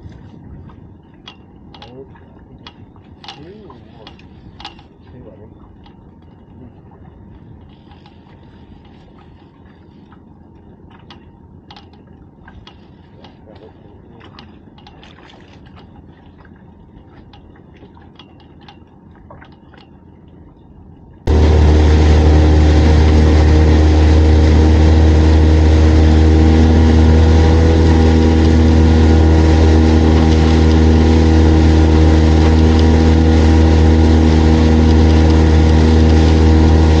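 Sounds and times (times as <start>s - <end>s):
boat engine humming: 0.0s - 37.0s
faint clicking: 7.6s - 16.5s
water rushing past hull: 21.2s - 37.0s.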